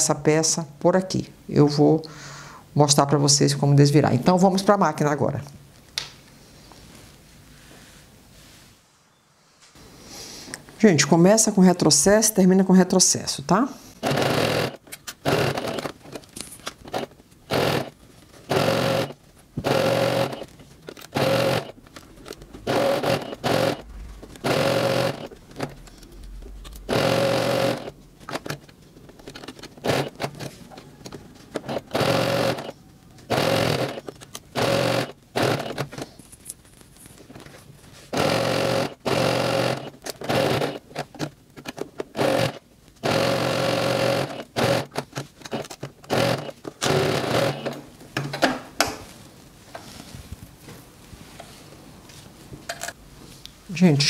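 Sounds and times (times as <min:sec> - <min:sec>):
sewing machine stitching: 0:14.0 - 0:16.0, 0:16.8 - 0:21.8, 0:22.5 - 0:26.0, 0:26.6 - 0:28.6, 0:29.3 - 0:30.6, 0:31.5 - 0:32.7, 0:33.3 - 0:35.9, 0:38.1 - 0:41.2, 0:42.1 - 0:47.8.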